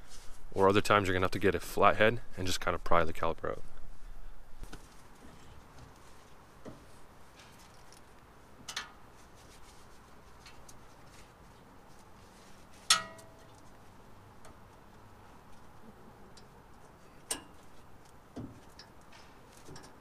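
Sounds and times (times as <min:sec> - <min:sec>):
metallic clank of brake parts: 0:12.9 - 0:13.7.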